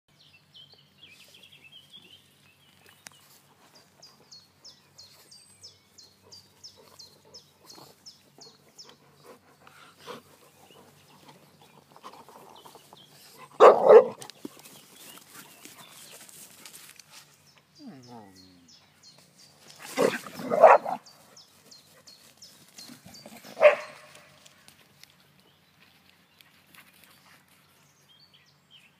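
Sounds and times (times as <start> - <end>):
dogs scuffling: 10.8 - 17.5
dog barking: 13.6 - 14.2, 20.0 - 21.0, 23.6 - 24.1.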